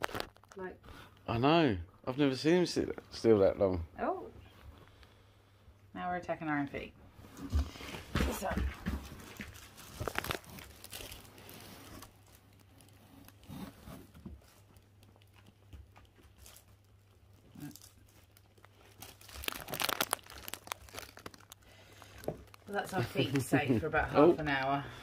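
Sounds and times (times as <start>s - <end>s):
puppy rustling fabric mat: 7.2s - 16.8s.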